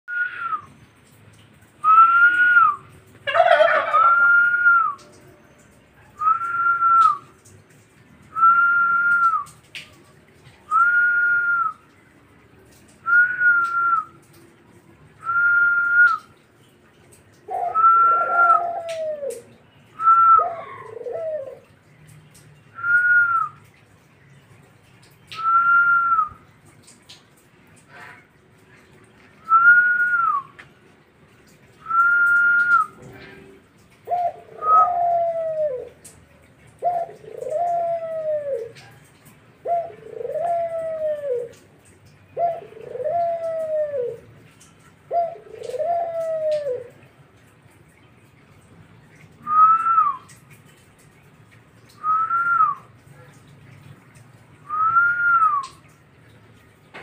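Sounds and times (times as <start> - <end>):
dove cooing: 3.3 - 5.2, 17.4 - 21.7, 31.9 - 36.1, 36.7 - 39.0, 39.6 - 44.3, 45.1 - 47.0.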